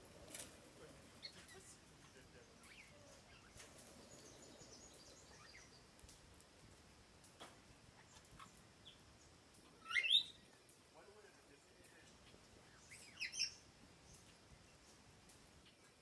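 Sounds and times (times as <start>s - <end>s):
parrot calls: 9.6s - 10.4s.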